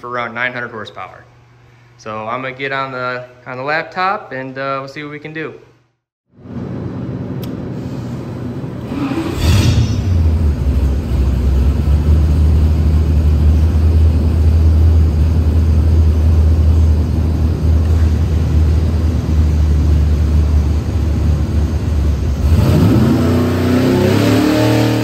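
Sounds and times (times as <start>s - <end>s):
supercharged engine revving: 8.8s - 25.0s.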